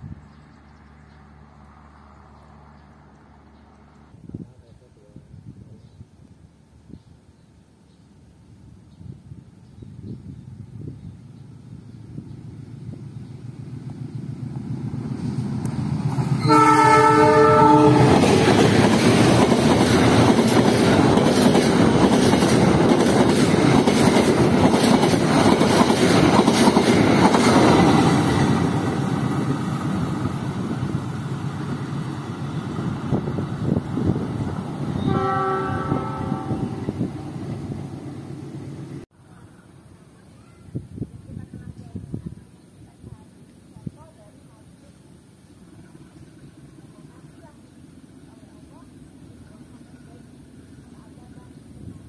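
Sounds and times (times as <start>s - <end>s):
train coaches rumbling past: 10.5s - 40.1s
train horn chord: 16.4s - 18.4s, 35.0s - 37.0s.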